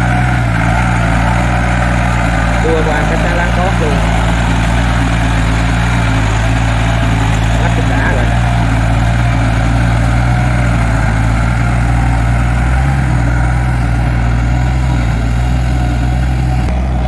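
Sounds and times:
diesel engine running steadily: 0:00.0 - 0:17.0.

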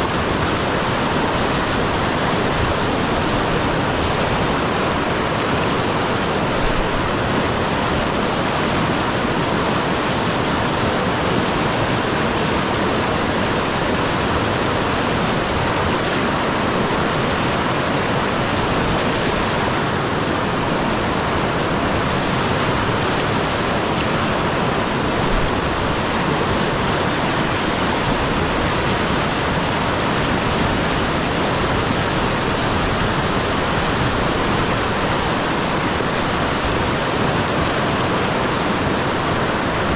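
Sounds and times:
river rapids rushing over rocks: 0:00.0 - 0:39.9.

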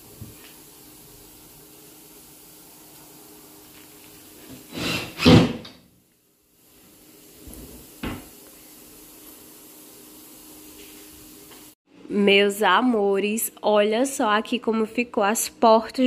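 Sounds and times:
cabinet door knocking shut: 0:08.0 - 0:08.3.

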